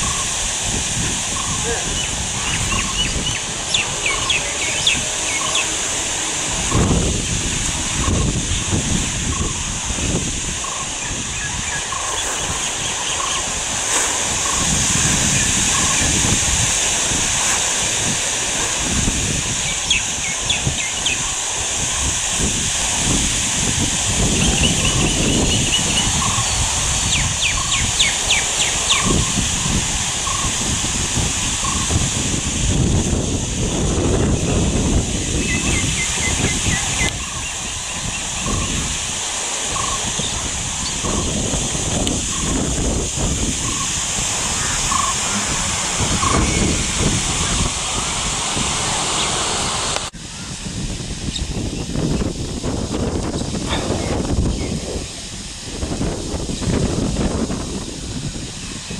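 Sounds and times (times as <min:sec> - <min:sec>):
steady high hiss: 0:00.0 - 0:58.9
wind gusting on microphone: 0:00.0 - 0:58.9
bird chirps and calls: 0:01.3 - 0:06.0, 0:10.6 - 0:16.3, 0:19.6 - 0:21.4, 0:24.3 - 0:29.4, 0:35.2 - 0:38.8, 0:43.6 - 0:47.7.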